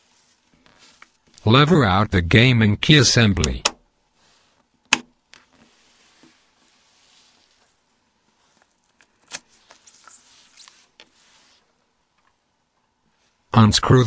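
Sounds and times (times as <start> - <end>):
sharp plastic clicks: 4.9 - 5.1.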